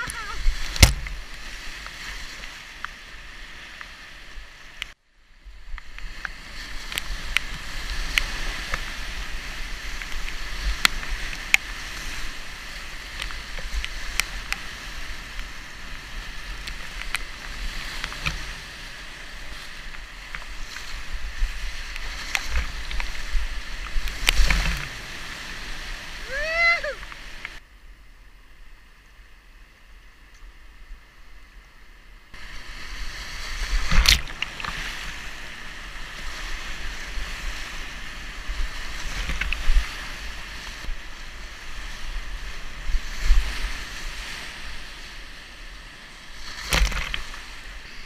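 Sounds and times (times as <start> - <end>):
waves splashing against boat: 0.0 - 4.8, 6.0 - 27.6, 32.4 - 48.0
roar of rushing water: 6.2 - 27.6.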